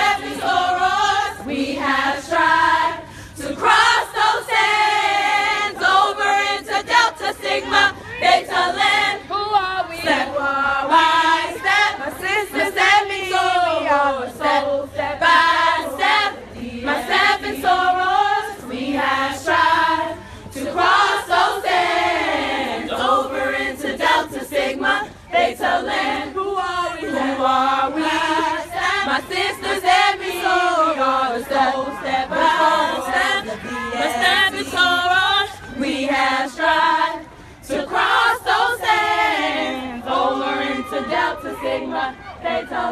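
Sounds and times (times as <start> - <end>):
women singing a cappella: 0.0 - 42.9.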